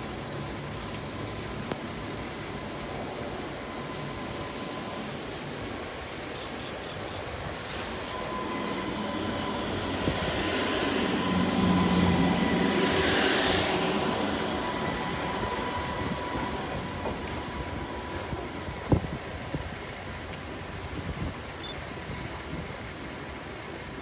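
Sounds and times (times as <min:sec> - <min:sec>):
train passing by: 0:00.0 - 0:24.0
high-pitched whine: 0:07.6 - 0:20.0.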